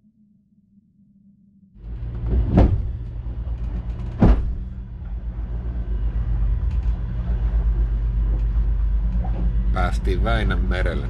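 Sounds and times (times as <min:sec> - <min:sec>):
boat diesel engine running: 0:01.8 - 0:11.0
hull thumping into wave: 0:02.2 - 0:03.0, 0:04.1 - 0:04.8.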